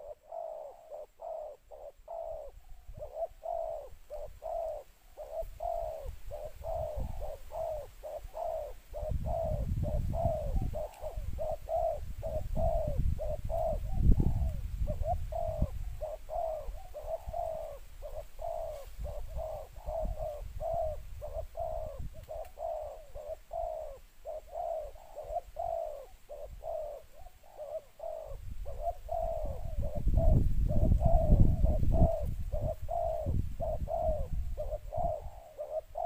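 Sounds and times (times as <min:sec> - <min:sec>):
doves cooing: 0:00.0 - 0:36.0.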